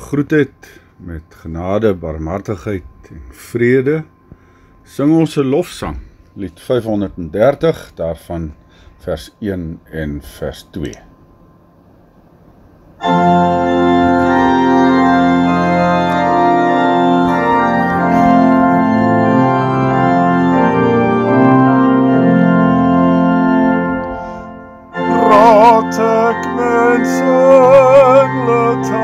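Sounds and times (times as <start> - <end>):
organ playing slow hymn chords: 0.0 - 29.0.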